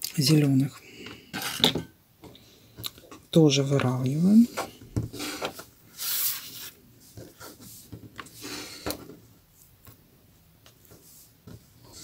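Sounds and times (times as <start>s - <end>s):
paper tubes rustling and scraping: 4.2s - 9.7s, 10.7s - 12.0s.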